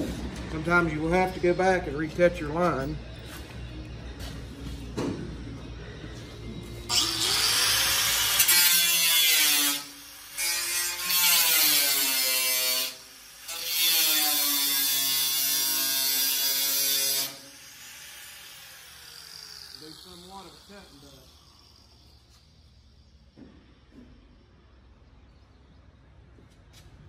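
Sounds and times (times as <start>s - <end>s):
angle grinder grinding metal: 6.9s - 23.0s.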